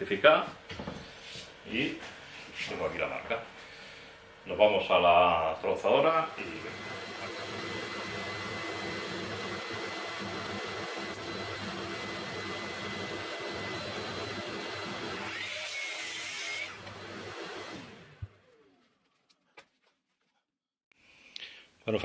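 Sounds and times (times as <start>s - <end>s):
workshop vacuum running: 0.0s - 18.9s.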